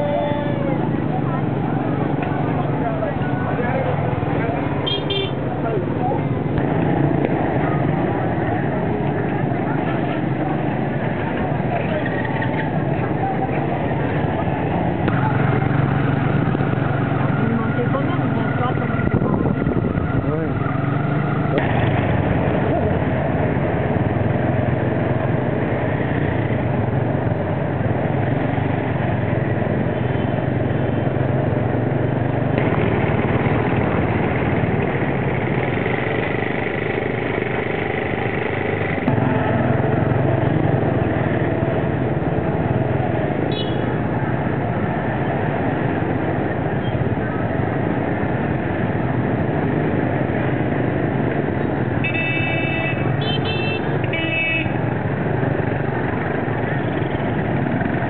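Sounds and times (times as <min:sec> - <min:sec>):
motorcycle engines humming: 0:00.0 - 0:58.0
road noise: 0:00.0 - 0:58.0
vehicle horns: 0:04.8 - 0:05.4, 0:43.5 - 0:43.9, 0:52.0 - 0:54.9.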